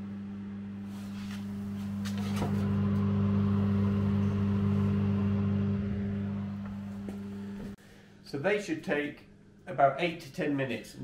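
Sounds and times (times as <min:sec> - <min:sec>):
oven fan humming: 0:00.0 - 0:07.8.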